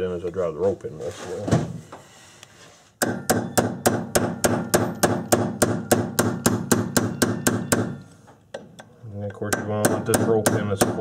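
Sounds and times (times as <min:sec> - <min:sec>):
hammer tapping metal punch: 0:03.0 - 0:11.0.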